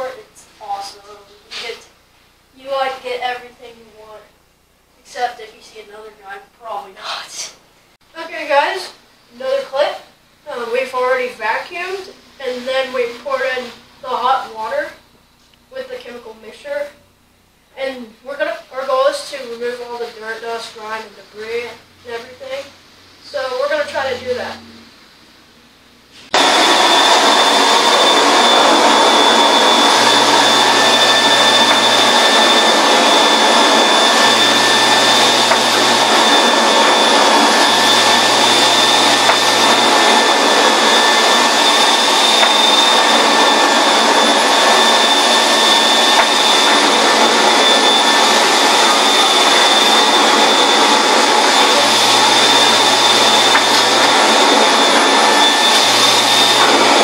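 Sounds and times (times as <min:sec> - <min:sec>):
carpet extractor vacuum motor whining: 0:26.3 - 0:57.0.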